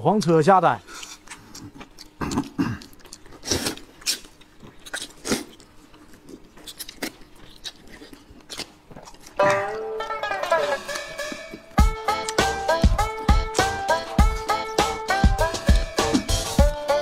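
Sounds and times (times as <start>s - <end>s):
people chewing and slurping noodles: 0.1s - 9.5s
music: 9.4s - 17.0s.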